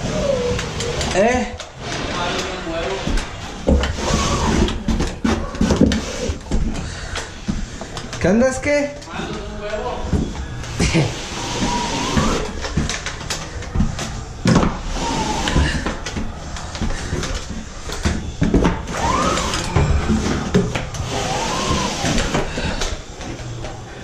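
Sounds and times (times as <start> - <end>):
drywall tool scraping compound: 0.0 - 7.0, 10.1 - 13.2, 14.5 - 23.4.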